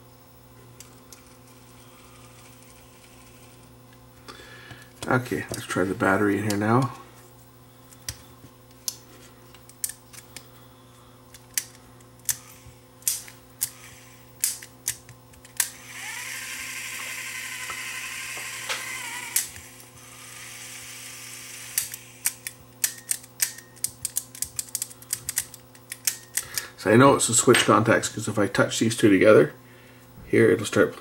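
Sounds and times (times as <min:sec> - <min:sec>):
small motor whirring: 0:01.2 - 0:03.6, 0:13.6 - 0:14.2, 0:15.6 - 0:22.6.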